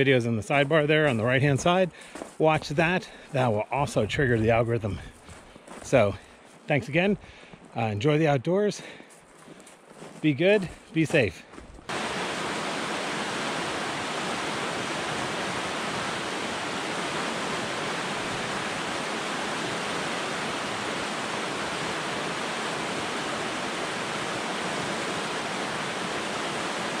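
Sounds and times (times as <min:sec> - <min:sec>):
river rushing over rocks: 0:11.9 - 0:27.0.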